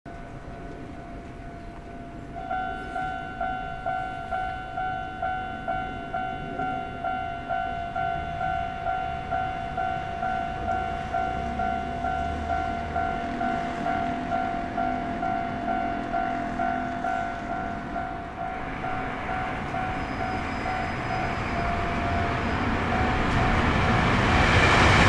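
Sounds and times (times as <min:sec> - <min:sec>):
level crossing bell dinging: 0:02.0 - 0:23.6.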